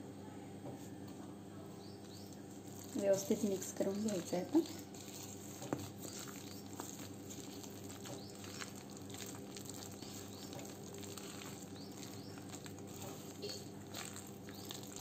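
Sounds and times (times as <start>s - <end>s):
steady low hum: 0.0s - 15.0s
hand squishing wet batter: 2.4s - 15.0s.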